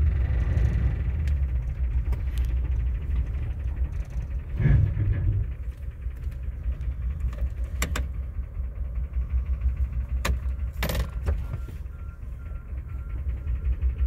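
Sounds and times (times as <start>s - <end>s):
truck engine idling: 0.0s - 14.0s
sharp clicks and knocks: 1.2s - 8.4s, 9.4s - 11.7s
faint repeating tone: 11.1s - 14.0s.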